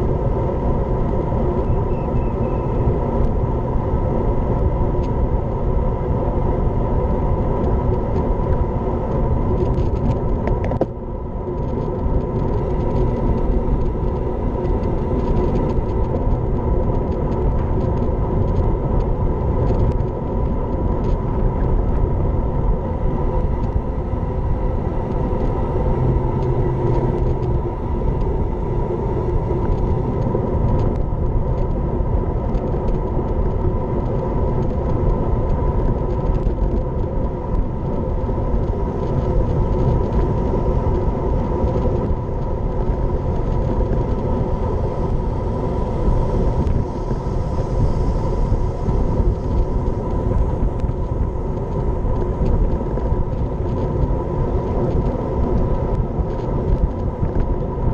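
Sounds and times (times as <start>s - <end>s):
bike tyres on tarmac: 0.0s - 57.9s
wind rush: 0.0s - 57.9s.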